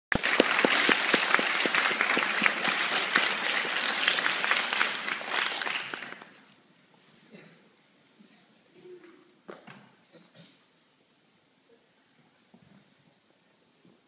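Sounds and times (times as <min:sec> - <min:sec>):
audience applause: 0:00.1 - 0:06.6.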